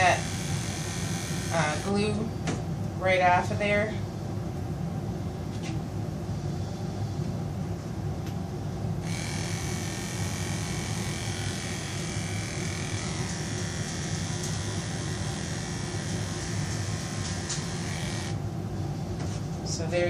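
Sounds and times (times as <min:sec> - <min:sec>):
electric clippers humming: 0:00.0 - 0:02.3, 0:09.0 - 0:18.4.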